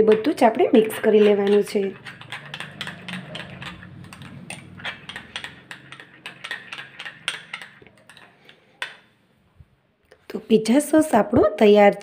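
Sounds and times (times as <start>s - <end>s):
spoon clinking in glass bowl: 0.0s - 9.0s.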